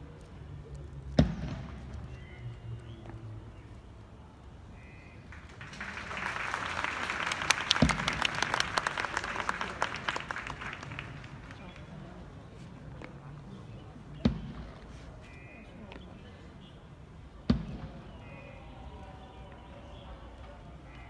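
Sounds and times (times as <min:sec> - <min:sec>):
crowd applause: 0:05.3 - 0:12.0.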